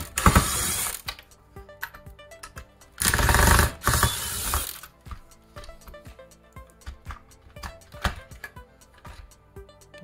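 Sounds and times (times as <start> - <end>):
power screwdriver running: 0.0 - 1.0, 3.0 - 4.8.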